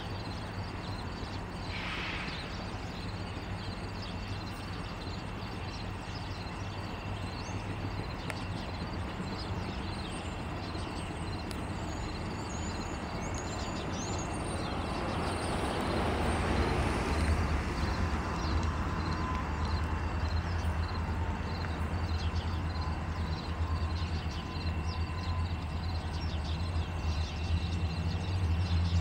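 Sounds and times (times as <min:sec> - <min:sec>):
diesel locomotives rumbling: 0:00.0 - 0:29.0.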